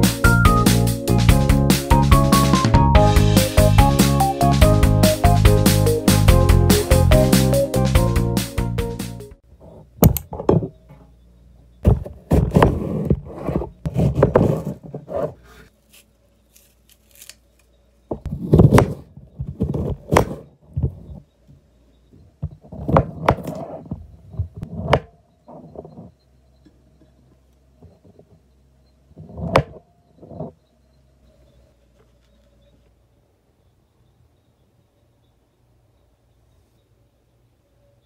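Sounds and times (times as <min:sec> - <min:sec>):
knife scraping fruit: 0:12.2 - 0:17.8.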